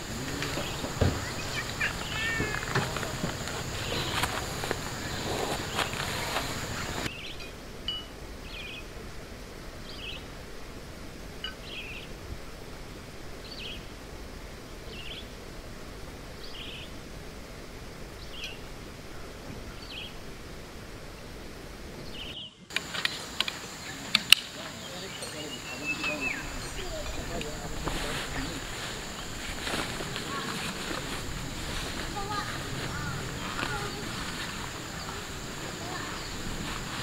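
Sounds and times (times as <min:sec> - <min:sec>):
bird chirping: 0:00.0 - 0:08.9, 0:18.2 - 0:20.2, 0:22.0 - 0:37.0
outdoor background noise: 0:00.0 - 0:37.0.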